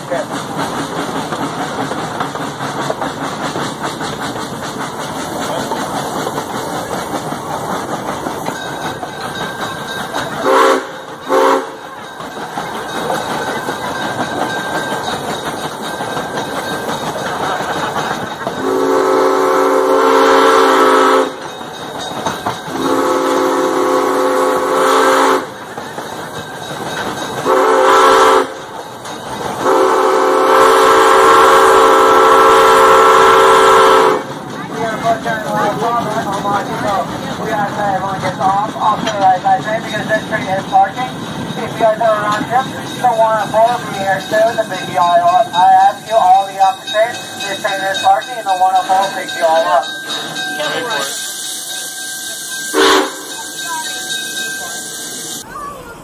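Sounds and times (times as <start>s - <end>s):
train rolling on track: 0.0s - 56.0s
steam locomotive whistle: 10.4s - 11.8s, 18.6s - 21.4s, 22.7s - 25.6s, 27.4s - 28.6s, 29.6s - 34.3s, 50.9s - 53.6s.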